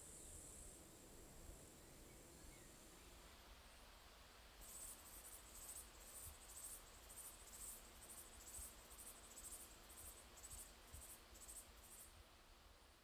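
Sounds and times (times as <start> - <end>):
high-pitched insect chirping: 4.6 - 12.1.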